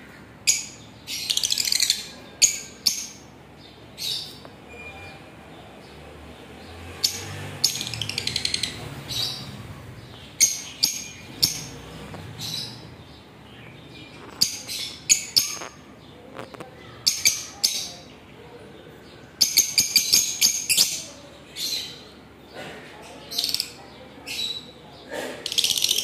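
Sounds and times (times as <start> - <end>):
lovebirds chirping: 0.0 - 26.0.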